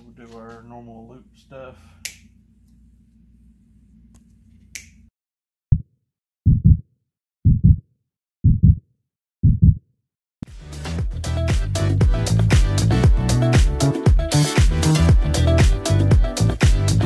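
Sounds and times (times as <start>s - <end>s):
heartbeat thumps: 6.5s - 6.8s, 7.4s - 7.8s, 8.4s - 8.8s, 9.4s - 9.8s.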